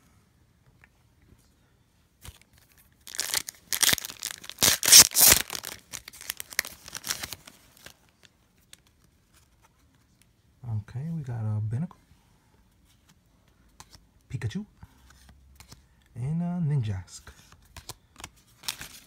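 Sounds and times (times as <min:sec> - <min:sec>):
foil wrapper tearing and crinkling: 0:03.0 - 0:07.9.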